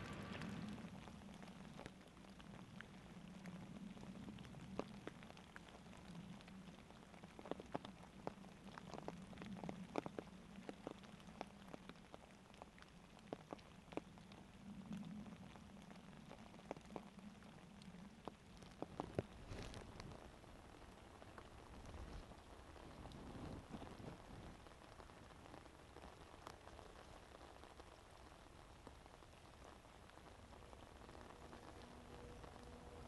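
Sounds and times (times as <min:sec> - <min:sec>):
flowing stream: 0:00.0 - 0:01.9
raindrops ticking on leaves: 0:00.0 - 0:33.0.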